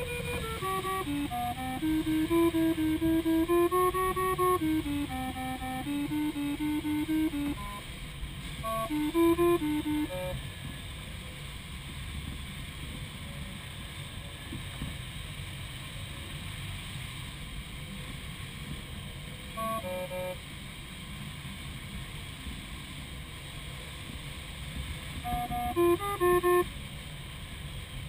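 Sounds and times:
stepped beeping tones: 0.0s - 7.8s, 8.6s - 10.4s, 25.2s - 26.6s
rushing airflow in cockpit: 0.0s - 10.9s.

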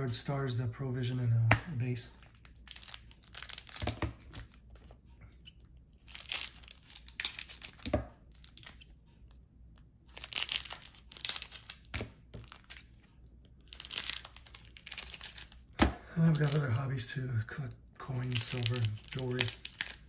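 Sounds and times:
trading cards rustling: 1.8s - 9.0s, 10.1s - 16.9s, 18.1s - 20.0s.

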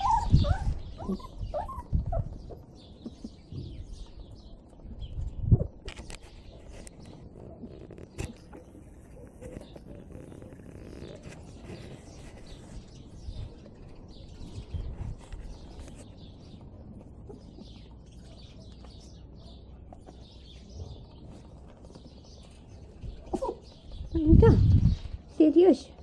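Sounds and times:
puppies squeaking and whimpering: 0.0s - 3.5s, 7.2s - 13.2s, 17.0s - 18.0s.

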